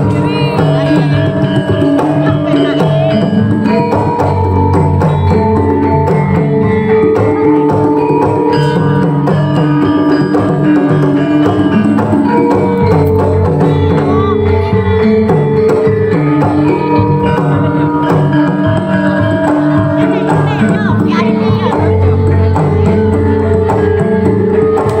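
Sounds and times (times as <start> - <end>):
hand drums: 0.0 - 25.0
metallophones ringing: 0.0 - 25.0.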